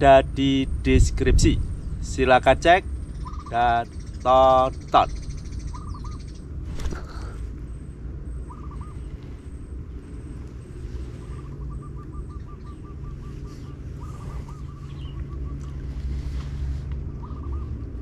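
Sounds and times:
low outdoor rumble: 0.0 - 18.0
bird calling in quick notes: 3.0 - 7.5, 8.4 - 16.2, 17.1 - 18.0.

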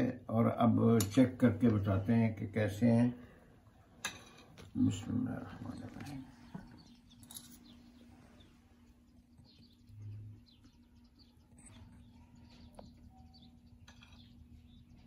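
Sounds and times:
low hum: 3.2 - 15.0
faint high chirps: 6.5 - 15.0.

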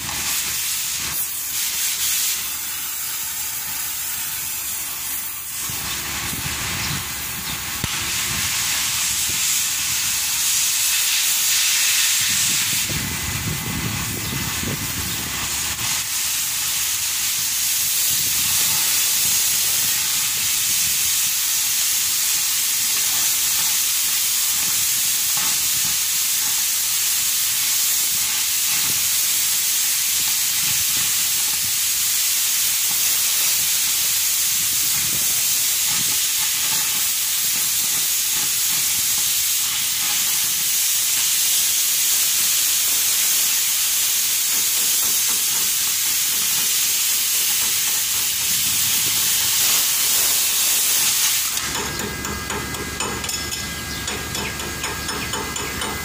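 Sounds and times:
welding arc crackling hiss: 0.0 - 56.0
angle grinder grinding steel: 32.8 - 41.3, 47.4 - 56.0.

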